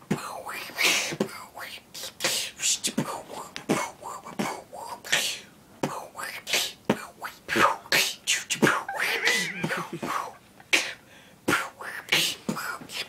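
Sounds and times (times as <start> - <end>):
beatboxing: 0.1 - 13.0
wavering vocal sound: 8.6 - 10.5.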